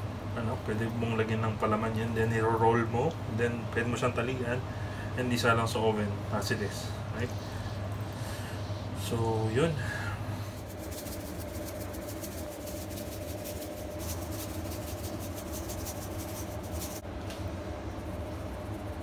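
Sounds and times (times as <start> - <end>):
steady low hum: 0.0 - 19.0
salt shaker rattling: 10.4 - 17.0.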